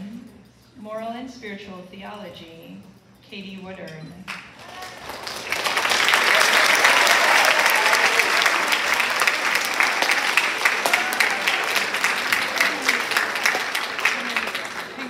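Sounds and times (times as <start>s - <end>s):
audience applauding: 4.4s - 15.0s.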